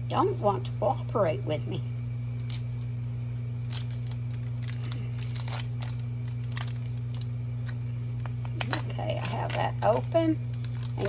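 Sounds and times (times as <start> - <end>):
steady low hum: 0.0 - 11.0
foil wrapper crinkling: 2.3 - 11.0.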